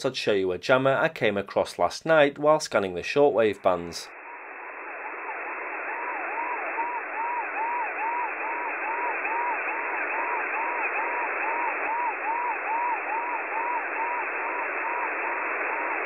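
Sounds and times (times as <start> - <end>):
radio static hiss: 0.0 - 16.0
swooping siren tone: 4.1 - 16.0.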